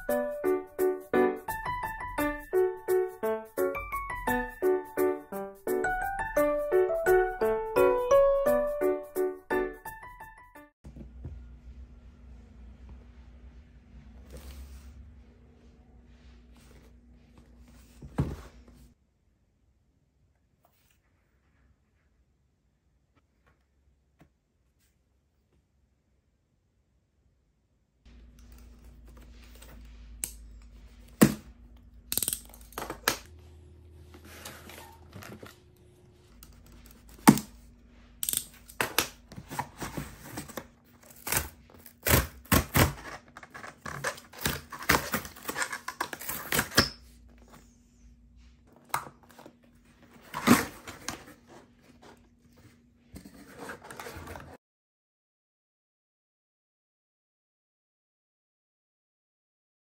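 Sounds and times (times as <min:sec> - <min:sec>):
cardboard tearing and rustling: 0:38.9 - 0:46.9, 0:50.0 - 0:52.2.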